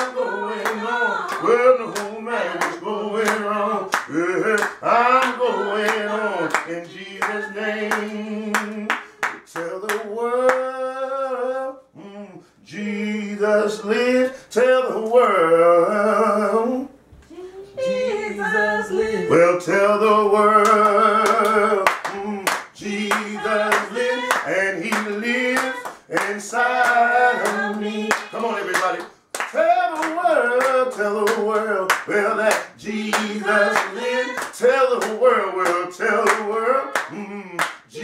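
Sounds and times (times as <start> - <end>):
hand claps: 0.0 - 10.6, 20.6 - 37.9
man singing gospel song: 0.0 - 17.0, 17.8 - 38.0.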